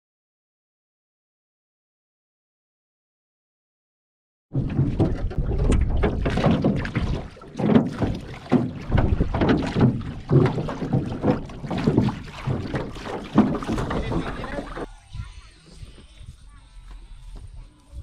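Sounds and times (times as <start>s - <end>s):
water sloshing around boat: 4.6s - 18.0s
wind buffeting microphone: 4.6s - 18.0s.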